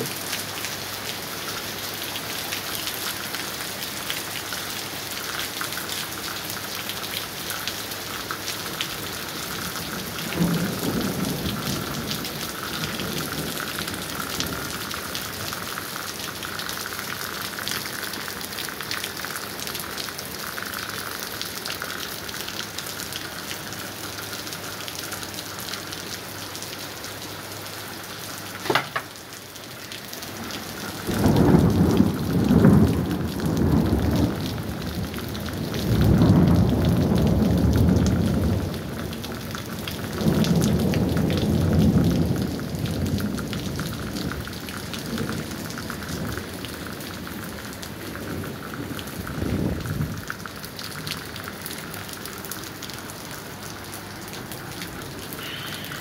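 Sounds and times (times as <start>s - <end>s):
heavy rain pouring: 0.0s - 56.0s
thunder rumbling: 9.5s - 15.0s, 30.4s - 39.3s.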